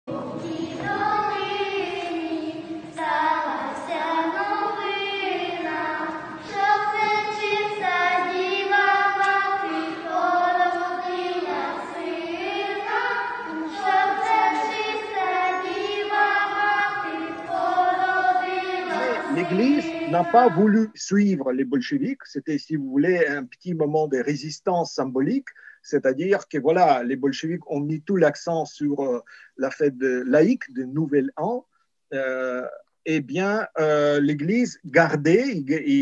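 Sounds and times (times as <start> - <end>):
children singing a carol: 0.1 - 20.9.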